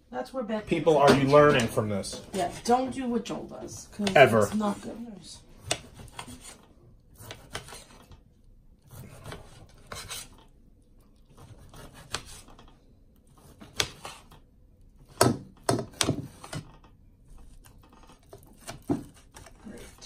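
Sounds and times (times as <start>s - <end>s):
knife scraping a ceramic plate: 5.6s - 8.1s, 8.8s - 10.5s.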